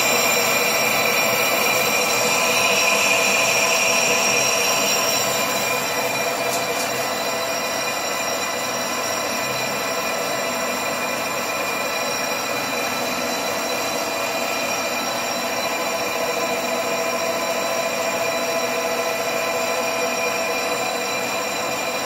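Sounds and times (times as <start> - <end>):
metal lathe whining: 0.0 - 22.0.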